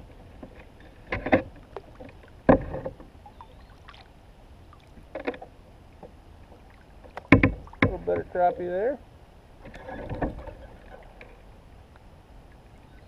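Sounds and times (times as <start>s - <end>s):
gear knocking in a kayak: 5.0s - 8.3s.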